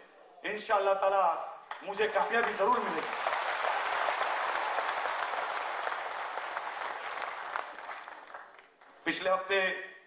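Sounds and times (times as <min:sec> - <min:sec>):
audience applause: 0:01.7 - 0:09.0.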